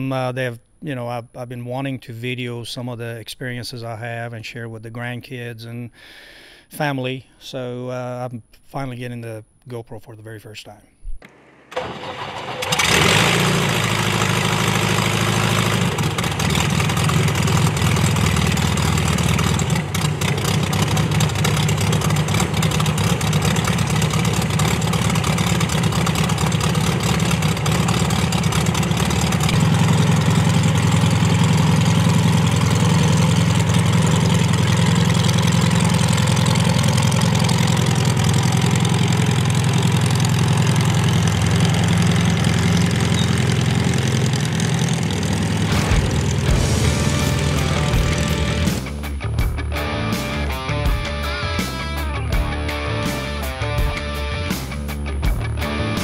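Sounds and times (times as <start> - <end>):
aircraft engine idling: 11.7 - 49.1.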